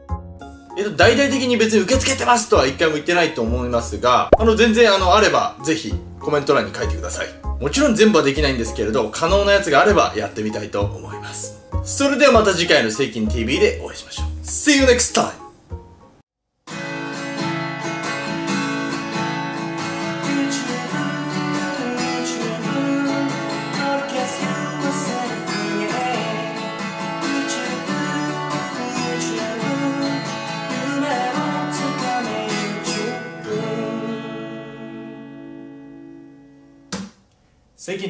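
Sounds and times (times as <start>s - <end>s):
acoustic guitar strumming: 16.7s - 37.0s.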